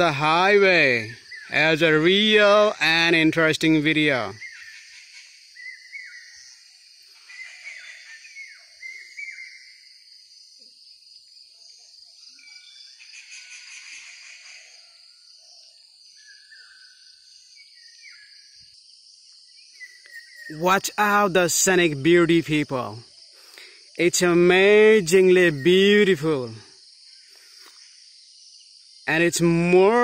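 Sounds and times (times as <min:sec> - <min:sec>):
birds chirping: 0:00.0 - 0:10.1, 0:11.7 - 0:30.0
insects droning: 0:00.0 - 0:30.0.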